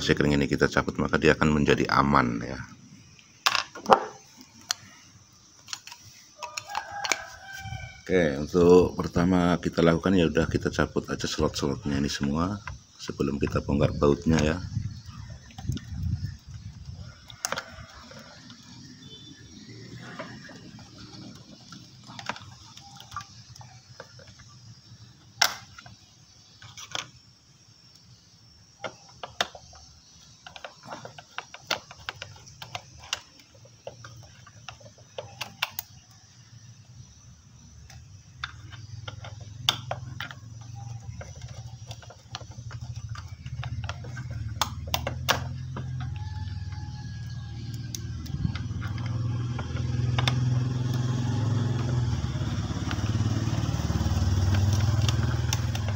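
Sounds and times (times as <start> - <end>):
plastic connectors clicking: 28.8 - 36.0, 37.8 - 53.2, 54.3 - 55.9
low engine rumble: 37.2 - 55.9.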